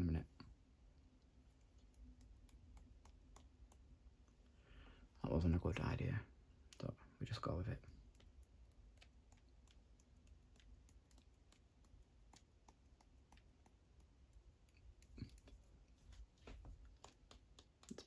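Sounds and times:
paint brush flicking clicks: 1.4s - 4.4s, 7.7s - 18.0s.

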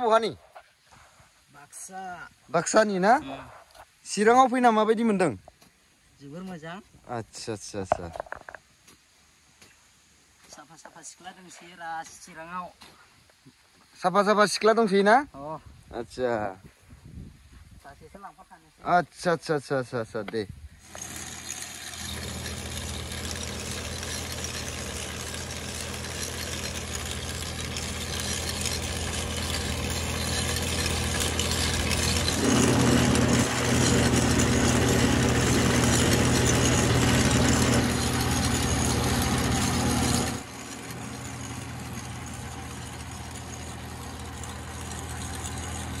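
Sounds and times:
tractor diesel engine running: 20.8s - 46.0s.

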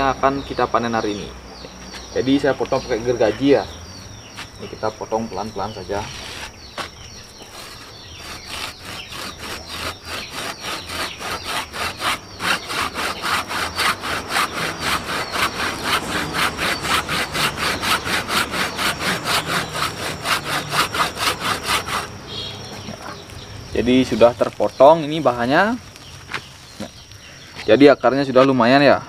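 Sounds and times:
pruning saw cutting wood: 5.6s - 23.2s.

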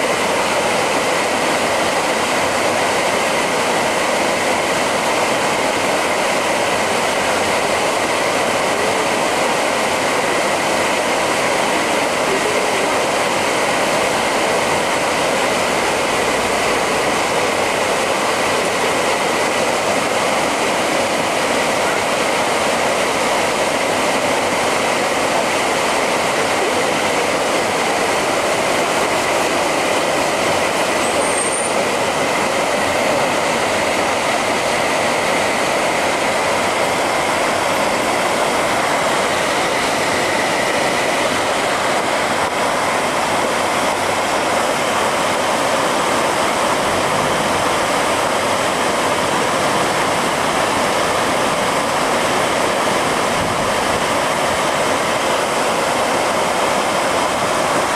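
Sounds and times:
water flowing in a canal: 0.0s - 57.9s.

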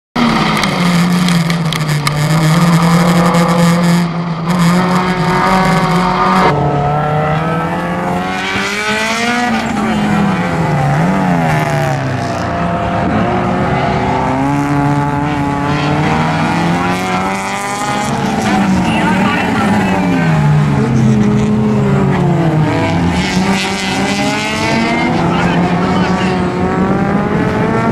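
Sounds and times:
race car engine under throttle: 0.2s - 27.9s
race cars passing: 0.2s - 27.9s.

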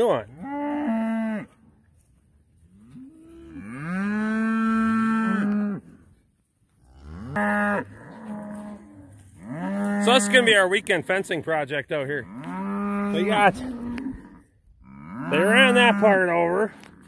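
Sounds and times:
cattle mooing: 0.0s - 1.6s, 2.7s - 6.0s, 6.9s - 10.6s, 12.2s - 17.0s.

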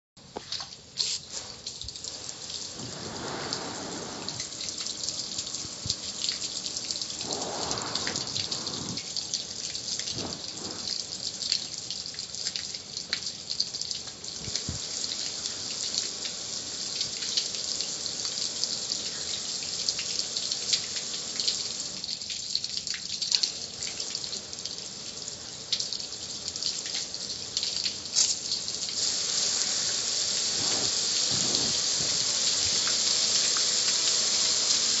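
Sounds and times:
water pattering on metal: 0.3s - 16.3s
hose nozzle spraying: 1.0s - 1.6s, 7.2s - 9.1s, 10.1s - 11.0s, 29.7s - 33.1s.

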